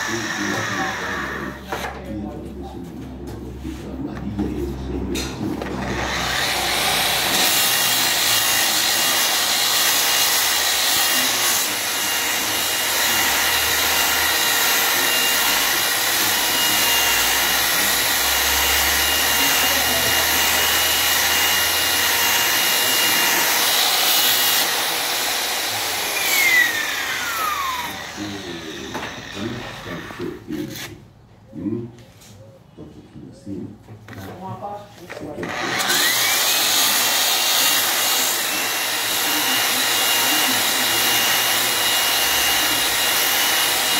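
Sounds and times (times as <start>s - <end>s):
angle grinder motor whine: 0.0s - 1.9s, 5.6s - 30.2s, 35.4s - 43.9s.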